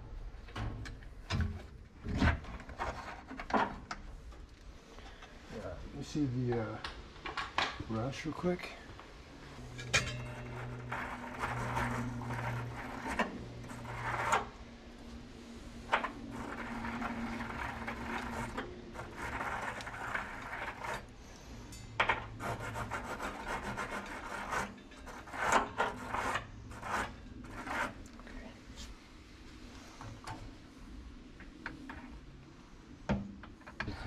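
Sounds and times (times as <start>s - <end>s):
low steady hum: 0.0s - 34.0s
hand scraping metal tank: 1.5s - 3.9s, 9.5s - 28.9s.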